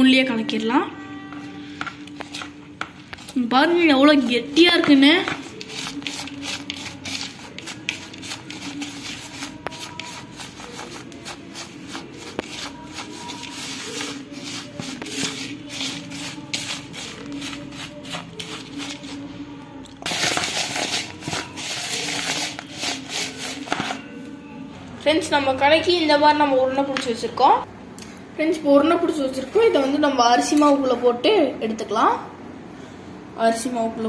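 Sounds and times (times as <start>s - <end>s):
spoon scraping a bowl: 1.3s - 3.4s, 4.8s - 19.3s, 20.0s - 24.2s
rushing rubbing noise: 5.4s - 19.3s, 20.1s - 24.0s.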